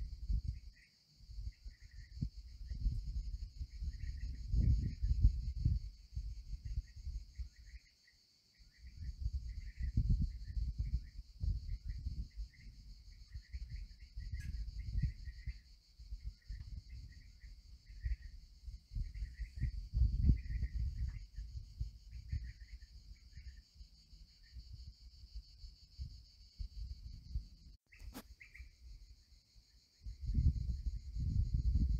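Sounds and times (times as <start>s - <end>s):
wind on microphone: 0.0s - 7.8s, 8.6s - 28.7s, 30.0s - 31.9s
insect drone: 0.0s - 31.9s
bird chirps: 6.7s - 24.7s, 27.9s - 28.9s.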